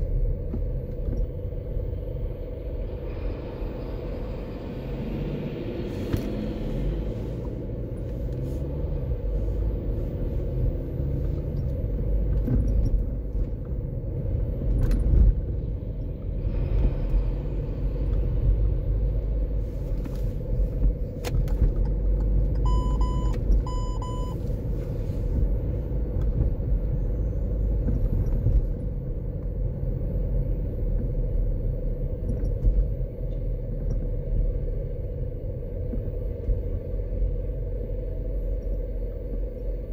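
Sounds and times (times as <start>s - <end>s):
car engine and tyre rumble: 0.0s - 39.9s
short electronic beeps: 22.6s - 24.4s.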